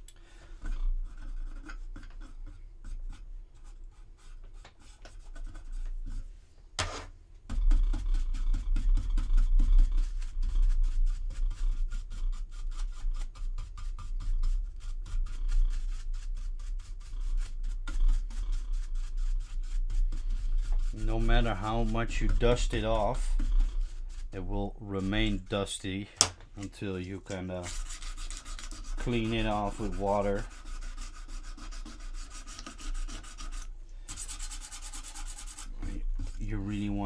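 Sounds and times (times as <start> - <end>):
sandpaper rubbing: 7.8 - 25.8, 26.9 - 37.0.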